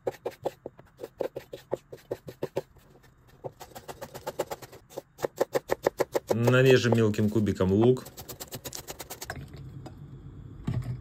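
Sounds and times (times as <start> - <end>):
knife chopping on plastic board: 0.0 - 7.2.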